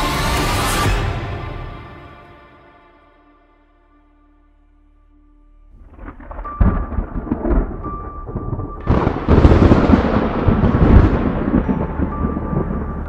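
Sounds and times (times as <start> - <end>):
loud thunder crash: 5.8 - 13.0
rolling thunder: 5.8 - 13.0.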